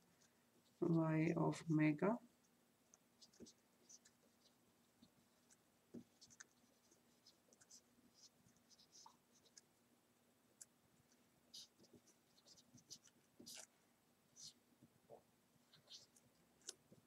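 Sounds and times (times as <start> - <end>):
marker scratching on paper: 3.2 - 9.7, 11.5 - 13.7, 14.4 - 14.6, 15.7 - 16.2.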